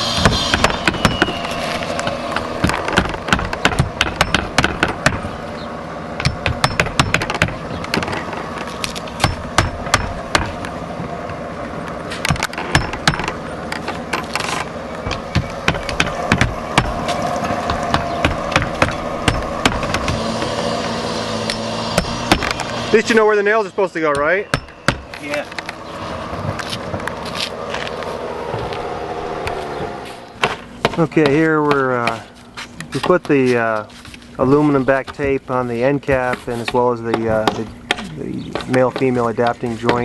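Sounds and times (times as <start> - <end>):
hammer driving nails through metal: 2.4 - 5.2, 6.2 - 8.2, 9.2 - 10.5, 12.2 - 13.4, 14.1 - 20.5.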